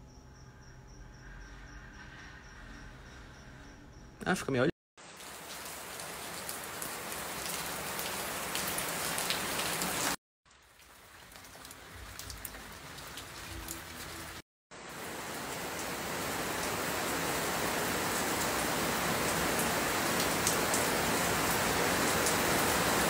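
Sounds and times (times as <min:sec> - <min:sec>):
rain pattering: 0:05.0 - 0:23.0.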